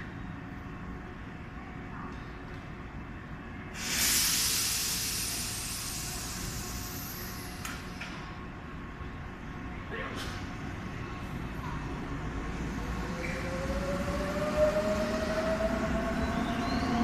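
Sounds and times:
train brakes releasing air hiss: 3.7 - 8.2.

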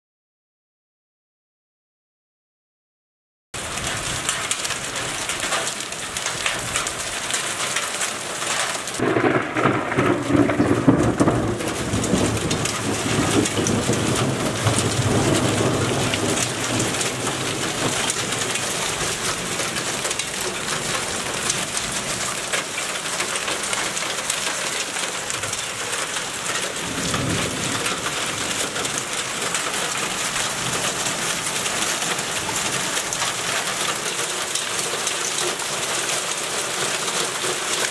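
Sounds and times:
hail and rain on hard ground: 3.6 - 37.9
thunder rumbling: 9.0 - 33.8.

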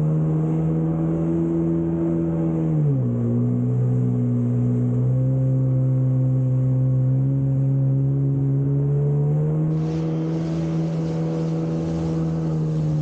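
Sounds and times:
jet ski engine running: 0.0 - 13.0
rushing water and spray: 9.7 - 13.0.

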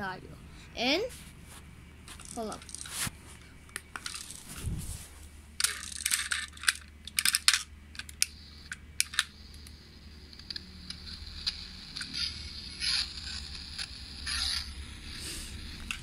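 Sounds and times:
toys clattering on hard floor: 5.6 - 8.1.

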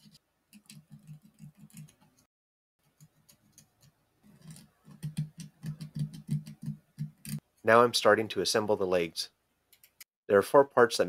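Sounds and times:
needle file rasping on plastic: 2.9 - 7.4.

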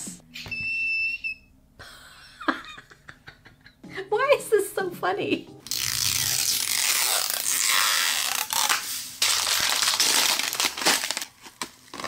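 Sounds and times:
plastic shrink-wrap crinkling: 5.7 - 12.0.

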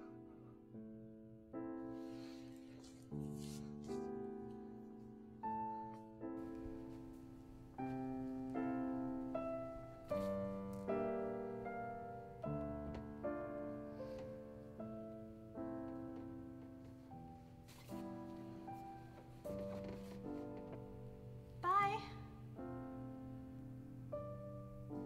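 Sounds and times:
slow piano chords: 0.0 - 25.0.

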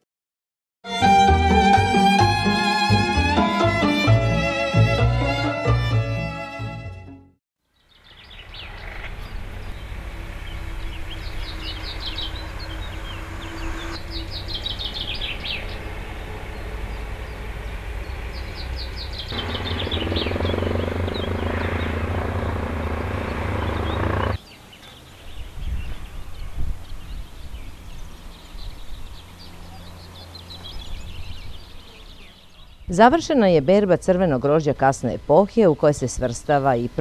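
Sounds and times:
birds chirping: 7.8 - 37.0.

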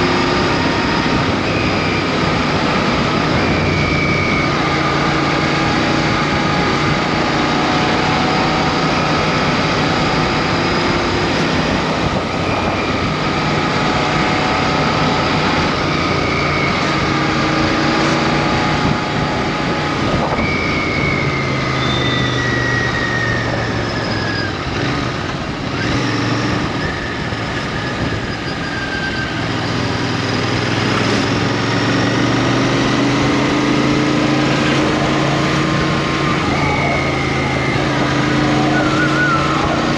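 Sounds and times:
wind noise: 0.0 - 21.6, 22.2 - 28.9
motorcycle engine running: 0.0 - 39.9
road noise: 0.0 - 39.9.

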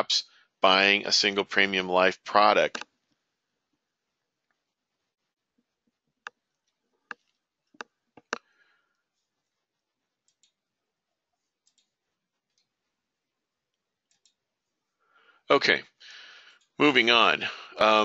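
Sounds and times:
computer mouse clicking: 6.2 - 8.5, 10.2 - 10.6, 11.6 - 12.7, 14.0 - 14.4.

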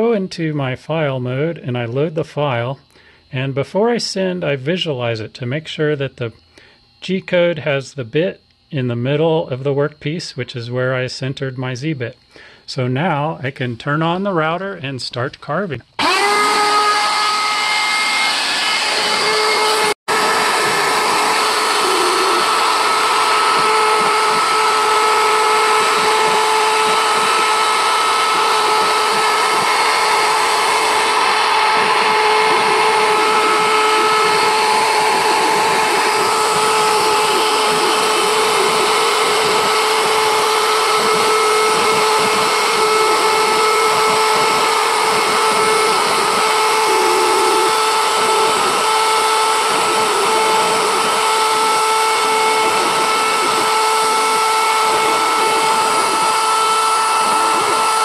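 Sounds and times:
cnc router spindle whine: 15.9 - 58.0.

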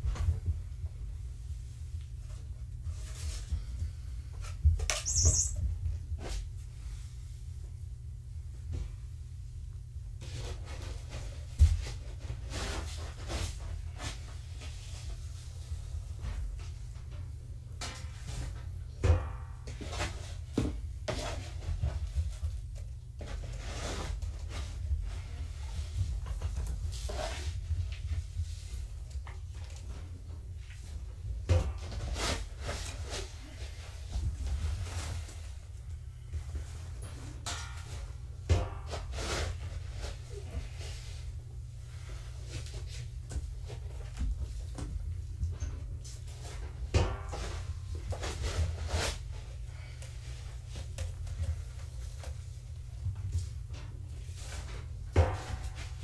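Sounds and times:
kittens rustling and scratching: 0.0 - 7.6, 8.6 - 18.9, 19.7 - 56.0
steady low hum: 0.0 - 56.0
kittens playing with toys: 2.8 - 5.7.

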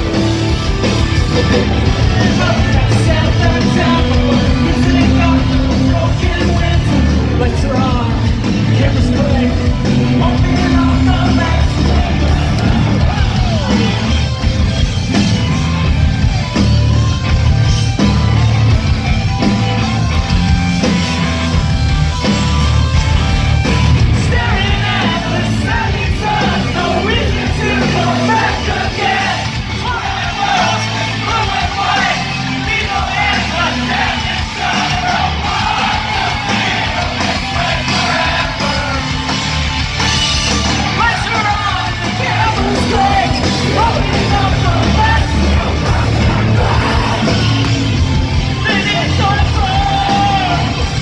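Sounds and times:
loud live rock band: 0.0 - 51.0
sung and shouted vocals: 1.8 - 14.3, 24.0 - 39.4, 40.7 - 51.0.

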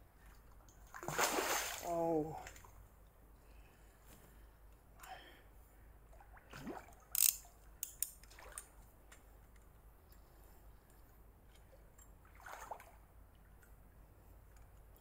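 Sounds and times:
fish splashing in water: 0.9 - 1.9
fishing reel handling: 7.1 - 8.2.

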